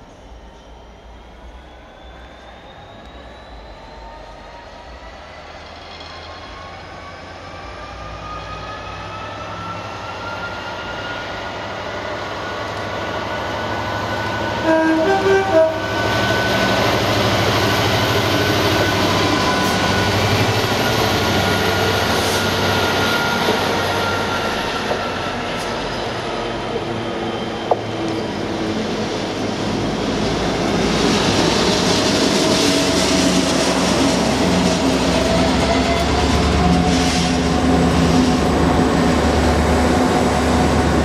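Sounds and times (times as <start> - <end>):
diesel locomotive engine passing: 0.0 - 41.0
locomotive horn blasts: 14.6 - 16.0.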